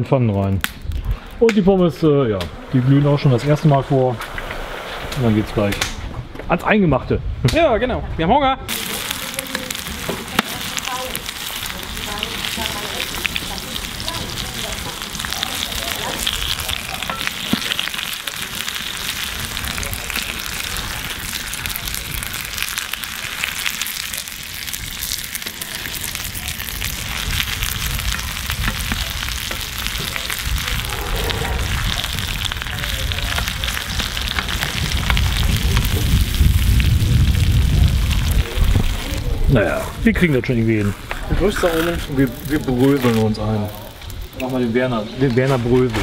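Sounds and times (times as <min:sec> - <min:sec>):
chicken sizzling in hot oil: 0:08.7 - 0:39.3
low rumble: 0:23.9 - 0:42.5.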